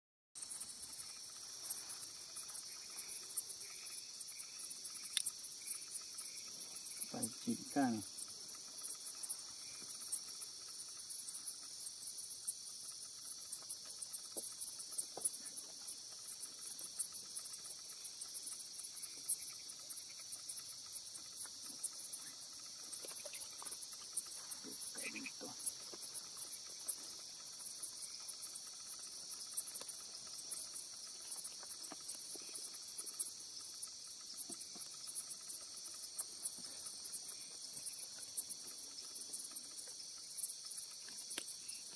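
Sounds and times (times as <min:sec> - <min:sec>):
insects trilling: 0:00.4 - 0:41.9.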